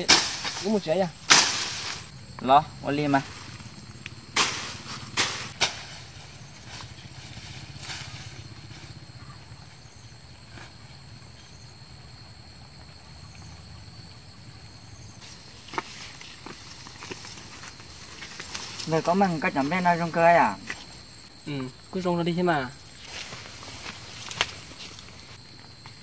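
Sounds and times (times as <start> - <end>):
footsteps in tall grass: 0.0 - 2.1, 4.4 - 9.0, 15.2 - 21.0, 22.8 - 25.8.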